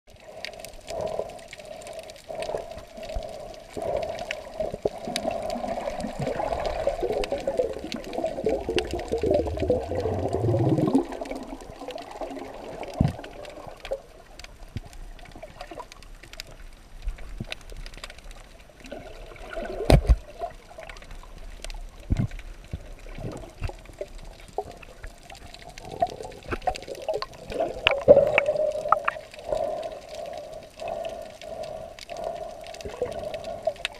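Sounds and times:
underwater sloshing and gurgling: 0.1s - 33.9s
deep downward gurgle: 3.1s - 14.3s, 18.8s - 21.4s, 22.0s - 30.1s.

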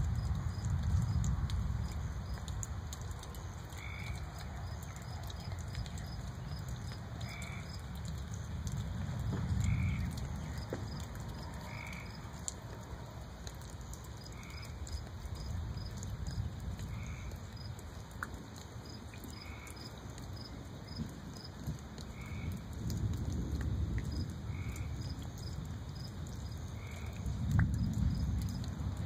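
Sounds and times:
distant thunder rumbling: 3.2s - 12.8s, 26.8s - 29.0s.

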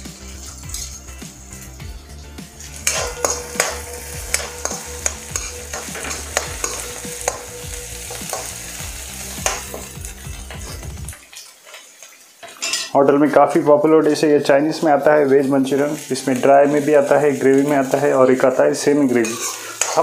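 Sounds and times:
vegetables sizzling while frying: 0.0s - 12.9s, 14.0s - 20.0s
metal spoon scraping a pan: 0.1s - 1.8s, 2.6s - 13.0s, 19.1s - 20.0s.

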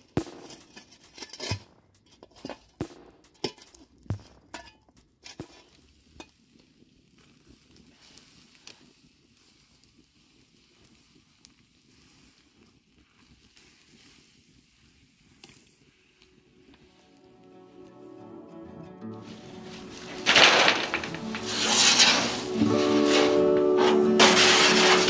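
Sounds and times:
shovel raking coals: 0.0s - 6.3s, 19.2s - 25.0s
faint steady hiss: 0.0s - 24.1s
campfire crackling: 0.0s - 25.0s.

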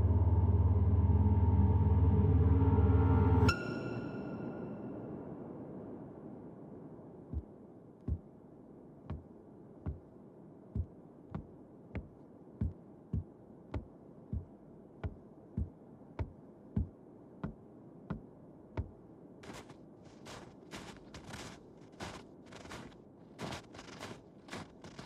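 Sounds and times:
boot footsteps on wooden stairs: 8.1s - 8.3s, 9.1s - 10.1s, 10.8s - 19.7s.

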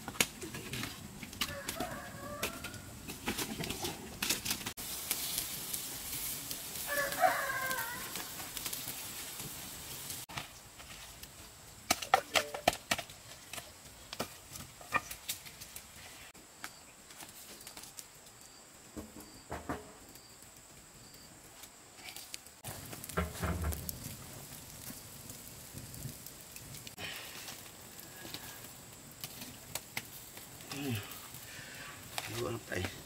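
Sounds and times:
fowl calling: 6.9s - 8.4s.

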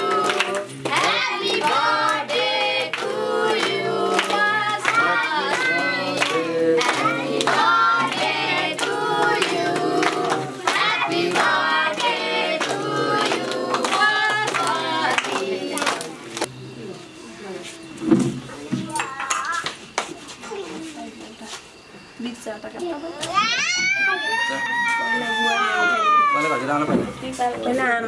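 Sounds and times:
hands clapping: 0.0s - 2.2s, 2.8s - 7.7s, 8.8s - 16.5s, 18.9s - 20.2s
voices singing together: 0.0s - 16.5s.

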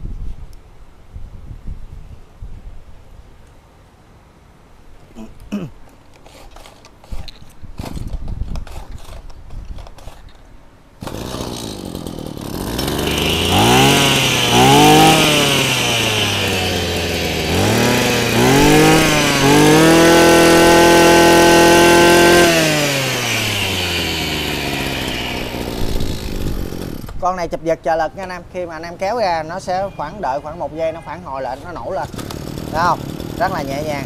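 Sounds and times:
brush cutter engine revving: 6.2s - 10.2s, 11.0s - 27.2s, 31.4s - 34.0s
recoil starter pull: 6.2s - 10.4s, 11.0s - 27.2s, 31.7s - 34.0s.

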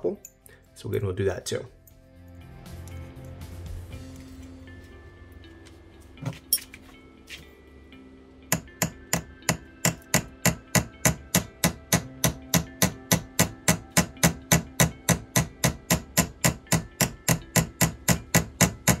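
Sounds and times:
small hammer tapping metal pin: 8.5s - 19.0s.

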